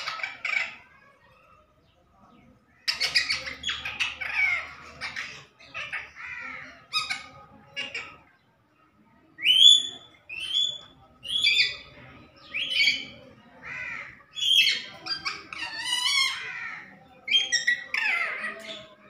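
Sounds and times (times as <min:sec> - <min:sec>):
parakeet screeching calls: 0:00.0 - 0:00.8, 0:02.8 - 0:08.2, 0:12.5 - 0:18.9
parakeet chattering: 0:00.0 - 0:01.0, 0:02.8 - 0:08.3, 0:09.5 - 0:18.9.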